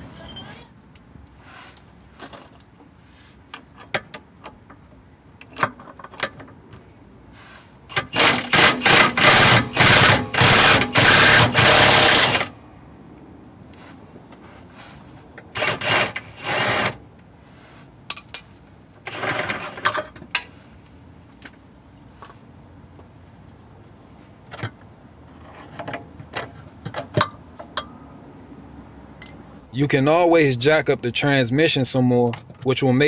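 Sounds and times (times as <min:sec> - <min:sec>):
impact wrench bursts: 0:07.9 - 0:12.5, 0:15.5 - 0:17.0
metal hand tools clinking: 0:18.1 - 0:18.6.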